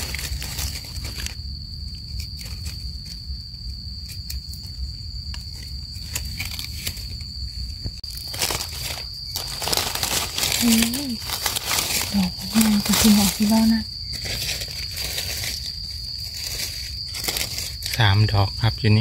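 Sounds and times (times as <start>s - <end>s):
dry leaves rustling: 0.0s - 1.4s, 5.4s - 7.4s, 8.0s - 18.3s
high insect drone: 0.0s - 19.0s.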